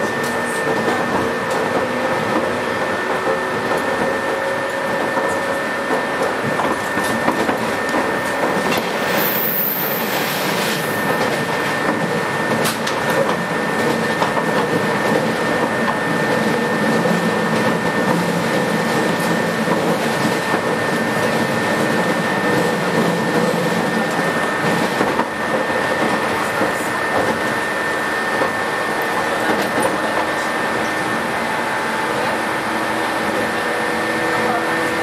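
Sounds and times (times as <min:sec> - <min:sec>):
train wheels rumbling on rail: 0:00.0 - 0:35.0.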